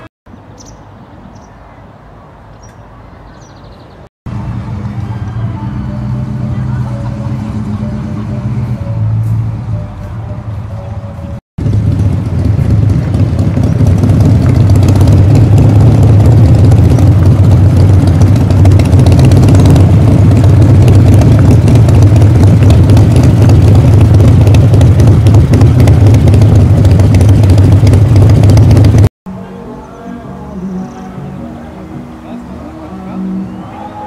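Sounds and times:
motorcycle engine running at low revs: 4.3 - 29.1.

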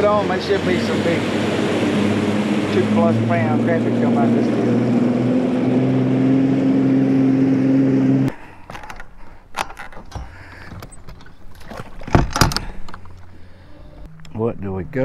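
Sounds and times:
outboard motor running: 0.0 - 8.3
fishing gear clicks and knocks: 8.4 - 13.5.

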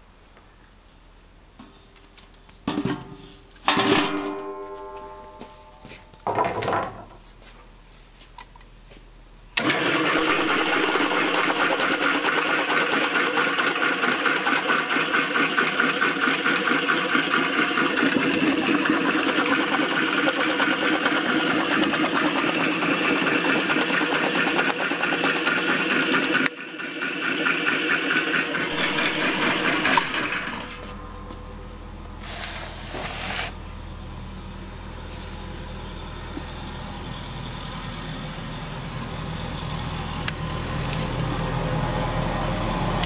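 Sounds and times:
steel ringing: 4.0 - 5.9
fruit slicer motor running: 9.6 - 33.6.

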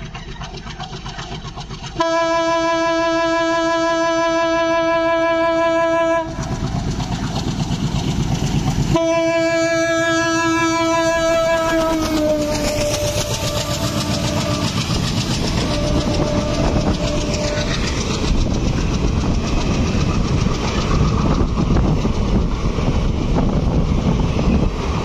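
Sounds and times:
wheels clacking over rail joints: 0.0 - 3.7, 5.4 - 25.0
train coaches rumbling: 0.0 - 25.0
locomotive horn: 2.0 - 6.6, 8.8 - 17.8.

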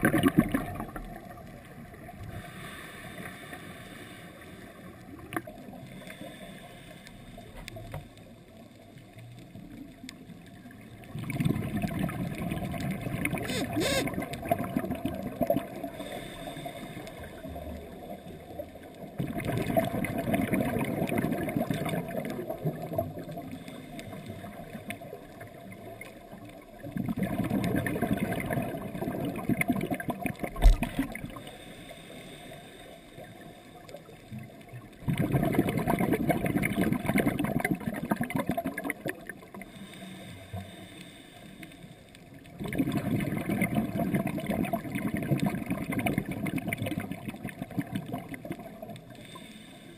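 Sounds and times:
underwater exhaled breath bubbles: 0.0 - 3.6, 10.7 - 31.6, 34.3 - 40.7, 42.4 - 49.6.

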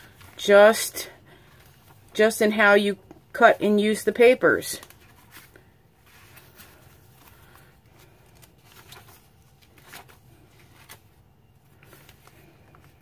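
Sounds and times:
paper pages rustling: 3.9 - 13.0.

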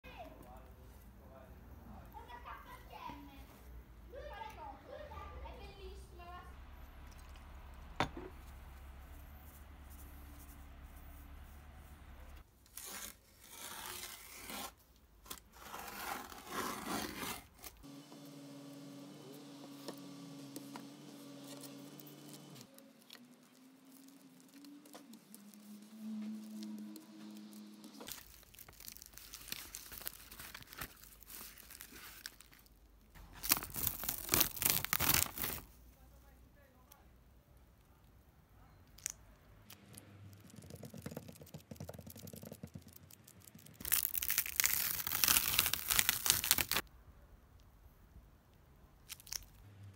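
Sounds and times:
plastic film crinkling: 21.0 - 35.8, 39.7 - 46.8
utility knife slicing plastic film: 33.4 - 35.7, 43.5 - 46.8.

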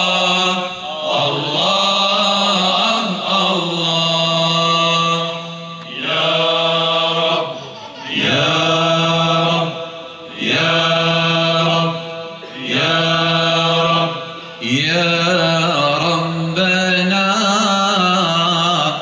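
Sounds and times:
male choir chanting: 0.0 - 19.0
singers breathing: 14.2 - 14.6.

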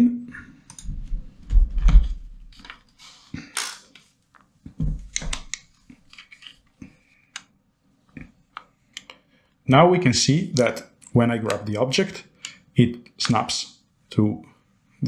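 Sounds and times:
microphone handling noise: 0.8 - 2.4
scrape: 3.0 - 3.4.

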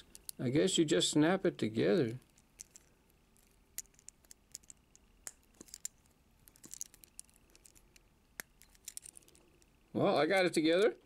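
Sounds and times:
plastic toy pieces clicking: 0.0 - 0.4, 2.0 - 9.7.

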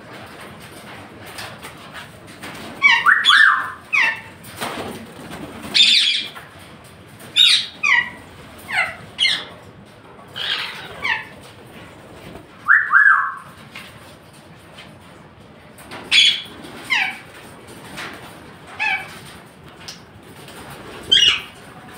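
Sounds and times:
parrots squawking: 2.8 - 4.3, 5.7 - 6.4, 7.3 - 9.6, 10.3 - 11.4, 12.7 - 13.5, 16.1 - 17.3, 18.7 - 19.2, 21.0 - 21.6.

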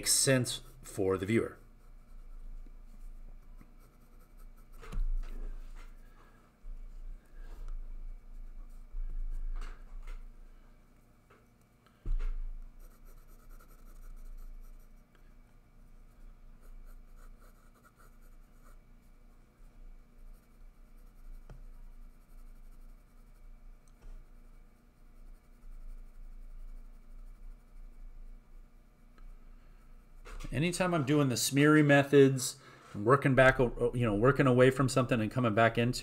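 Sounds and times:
pencil scratching on paper: 0.1 - 6.1, 12.7 - 15.1, 16.0 - 19.1, 20.1 - 23.6, 24.2 - 28.2.

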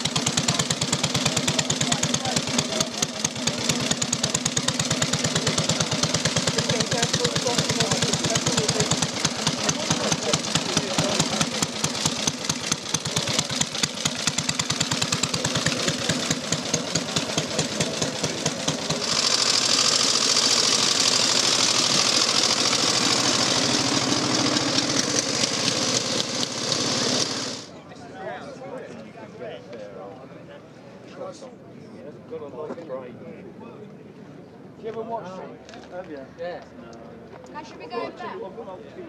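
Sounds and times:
motorcycle engine running: 0.0 - 27.7
smoother engine running: 0.0 - 27.7
loud hiss: 18.7 - 27.7.

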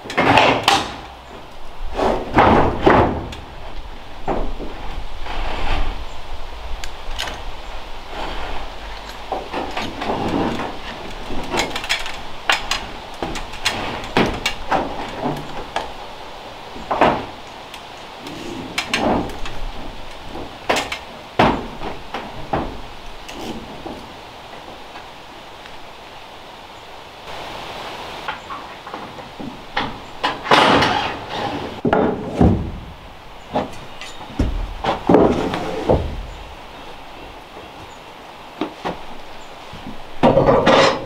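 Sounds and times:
footsteps on ladder and metal roof: 0.0 - 6.0, 8.1 - 16.0, 16.6 - 25.1, 28.2 - 36.5, 38.5 - 41.0
sharp bangs on metal roof: 2.0 - 3.6.

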